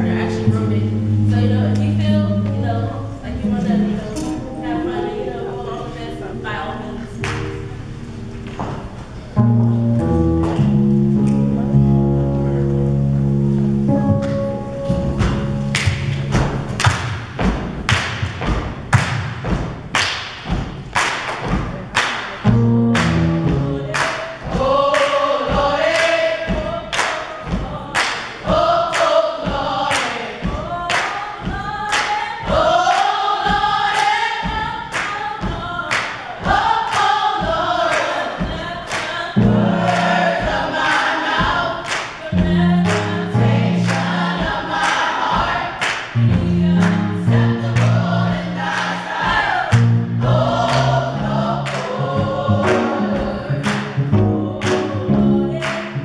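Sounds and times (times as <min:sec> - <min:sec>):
gospel choir singing: 0:00.0 - 0:10.2, 0:22.4 - 0:56.0
hand claps: 0:15.7 - 0:22.4, 0:23.0 - 0:23.3, 0:23.9 - 0:25.2, 0:26.9 - 0:27.3, 0:28.0 - 0:29.2, 0:41.8 - 0:42.2, 0:45.8 - 0:46.2.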